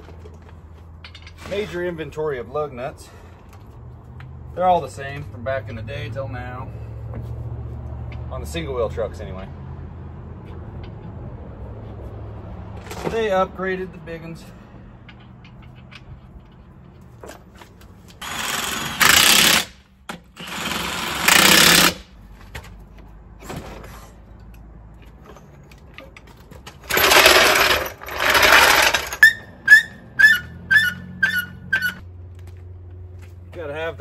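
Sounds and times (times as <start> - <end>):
impact wrench on lug nuts: 18.2 - 22.2, 25.7 - 32.0.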